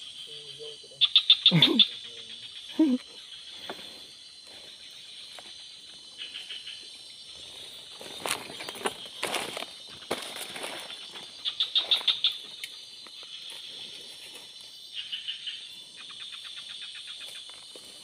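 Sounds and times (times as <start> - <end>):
insect chorus buzzing and chirring: 0.0 - 18.0
rustling through leaves: 7.5 - 12.1.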